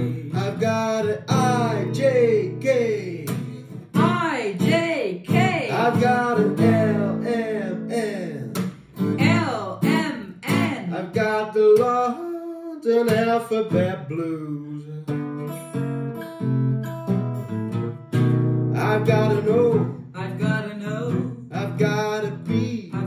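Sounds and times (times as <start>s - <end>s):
person singing: 0.0s - 15.7s, 18.8s - 23.0s
acoustic guitar strumming: 0.0s - 23.0s.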